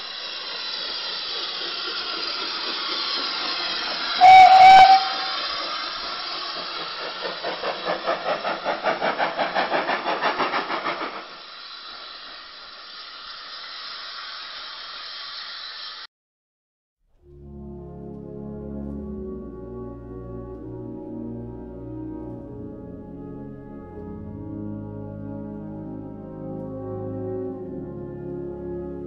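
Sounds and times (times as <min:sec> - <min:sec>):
locomotive exhaust chuffing: 0:00.0 - 0:12.9
steam hissing: 0:00.0 - 0:16.1
steam whistle blast: 0:04.1 - 0:05.7.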